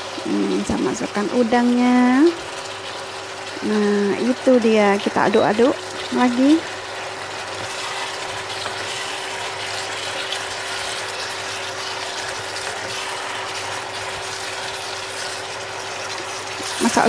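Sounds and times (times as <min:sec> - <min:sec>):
food sizzling in a wok: 0:00.0 - 0:17.0
spatula scraping wok: 0:07.4 - 0:17.0.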